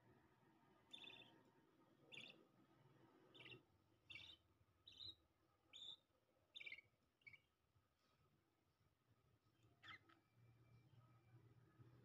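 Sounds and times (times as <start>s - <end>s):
budgerigars chirping faintly: 0.9s - 1.4s, 2.1s - 2.5s, 3.2s - 7.5s, 9.8s - 10.2s.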